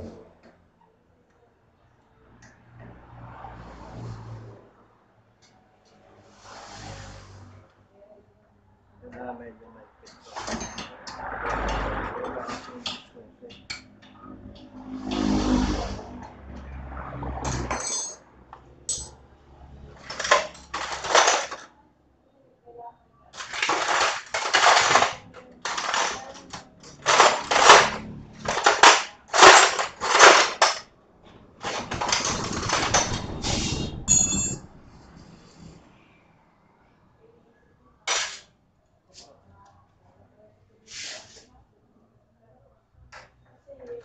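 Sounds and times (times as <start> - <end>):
metal clinks and knocks: 17.5 - 18.2, 18.9 - 19.2, 34.0 - 34.7.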